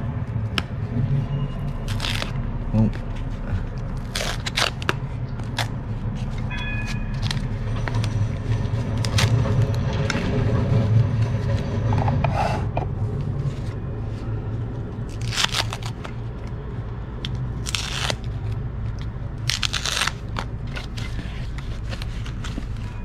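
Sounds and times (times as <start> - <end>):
foam wrapping crinkling and tearing: 1.8 - 2.4, 3.7 - 6.4, 7.1 - 9.8, 15.1 - 16.1, 17.2 - 18.6, 19.4 - 23.0.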